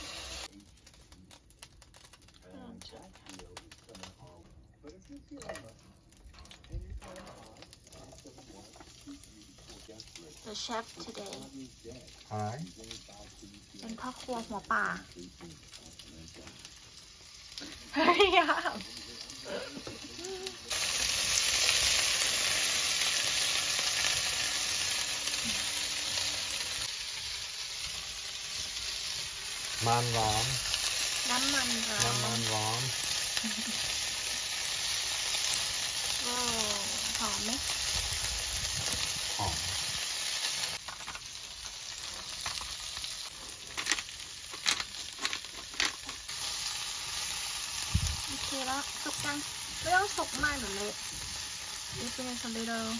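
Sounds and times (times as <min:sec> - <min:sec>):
vegetables sizzling in hot oil: 0:00.0 - 0:52.9
pepper mill grinding: 0:40.8 - 0:47.2.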